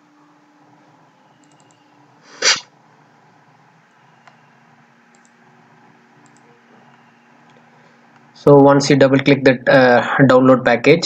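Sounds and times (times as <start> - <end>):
short loud burst of noise: 2.3 - 2.7
faint mouse clicks: 5.1 - 5.4.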